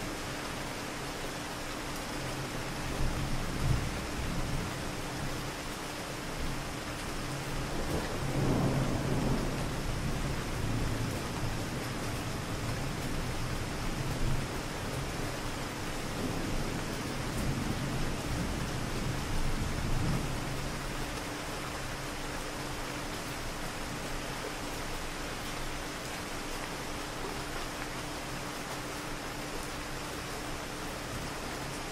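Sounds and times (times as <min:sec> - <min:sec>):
steady rain hiss: 0:00.0 - 0:31.9
distant thunder rumbling: 0:08.0 - 0:09.7.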